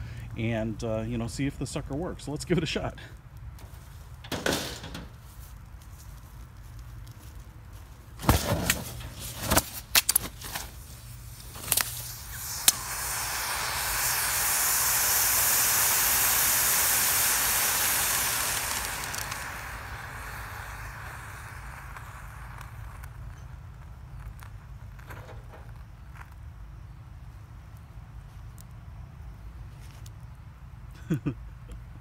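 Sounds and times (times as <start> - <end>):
extinguisher spray hissing: 10.8 - 24.2
extinguisher sharp pop: 11.6 - 23.3.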